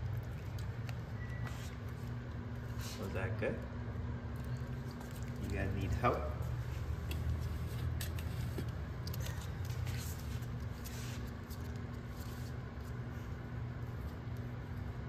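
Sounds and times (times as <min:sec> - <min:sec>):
puppies chewing dry kibble: 0:00.0 - 0:02.4, 0:04.3 - 0:10.8
steady low hum: 0:00.0 - 0:15.0.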